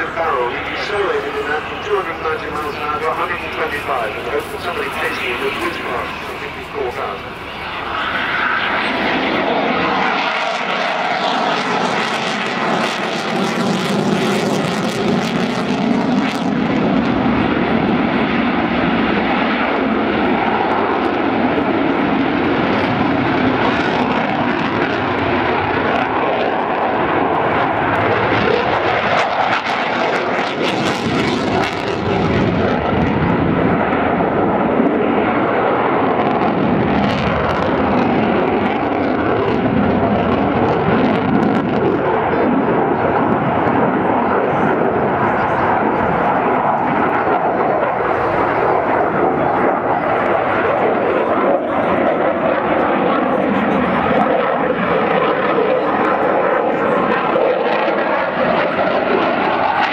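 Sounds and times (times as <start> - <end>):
jet flying overhead: 0.0 - 59.9.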